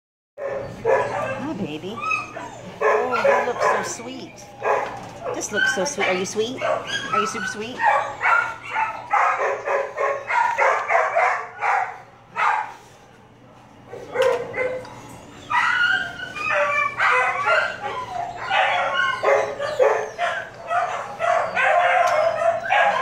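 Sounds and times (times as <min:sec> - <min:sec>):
dog barking: 0:00.4 - 0:01.5, 0:02.8 - 0:04.0, 0:04.6 - 0:12.8, 0:13.9 - 0:14.9, 0:16.6 - 0:23.0.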